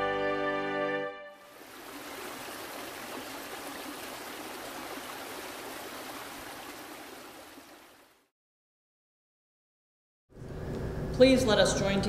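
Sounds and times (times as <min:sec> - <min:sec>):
stream rushing over rocks: 0:01.4 - 0:08.2.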